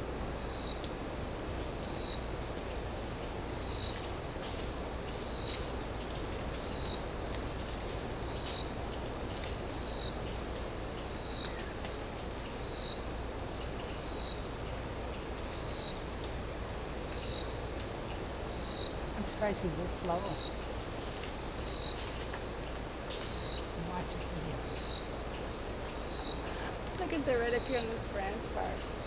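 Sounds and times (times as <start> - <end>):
insects droning: 0.0 - 29.0.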